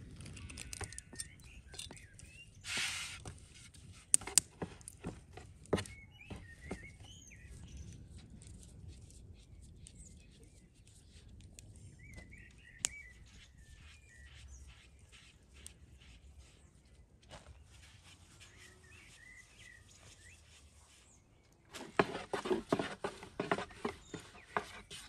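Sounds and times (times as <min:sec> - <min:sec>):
birds chirping faintly: 0:00.0 - 0:25.0.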